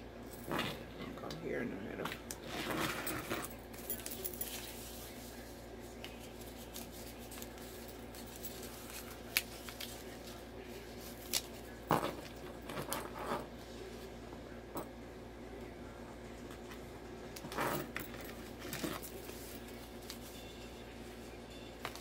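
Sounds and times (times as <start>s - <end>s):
paper rustling: 4.0s - 11.8s.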